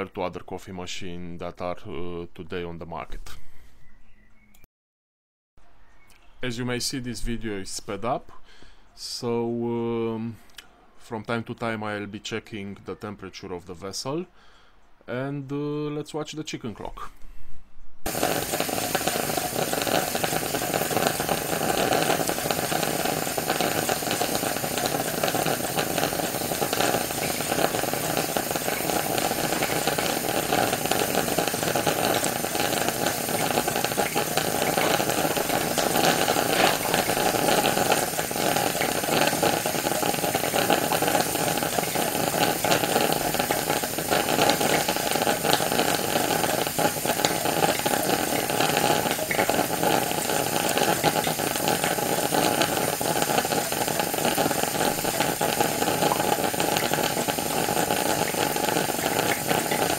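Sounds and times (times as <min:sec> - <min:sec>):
coffee sputtering and percolating: 0:18.1 - 0:59.9
steam hissing: 0:18.1 - 0:59.9.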